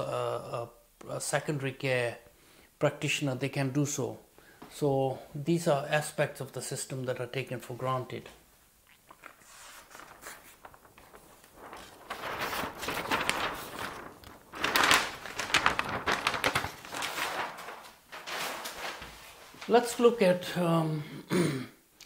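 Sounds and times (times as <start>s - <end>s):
large paper sheets rustling: 9.2s - 20.5s.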